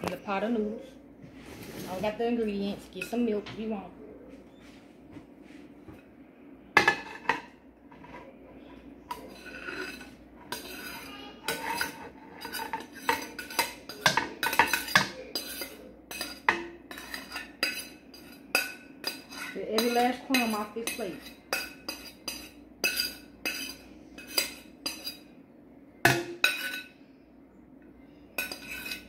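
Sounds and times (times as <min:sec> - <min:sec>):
utensil scraping a plate: 0:01.3 - 0:03.3, 0:06.8 - 0:25.3, 0:28.4 - 0:29.0.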